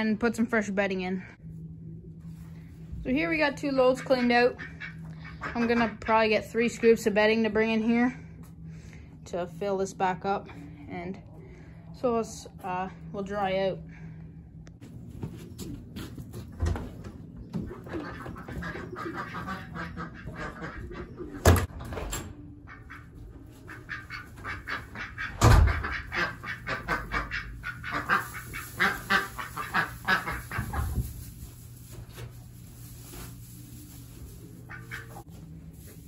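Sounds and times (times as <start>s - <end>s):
ducks quacking: 3.7s - 6.2s, 17.6s - 21.6s, 22.6s - 31.2s, 34.7s - 35.3s
chickens calling: 17.0s - 21.7s, 22.4s - 31.6s, 34.4s - 35.4s.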